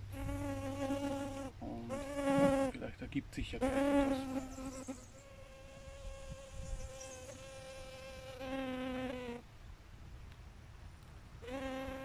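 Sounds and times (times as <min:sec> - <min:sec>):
flying insect buzzing: 0:00.1 - 0:02.7, 0:03.6 - 0:09.4, 0:11.4 - 0:12.0.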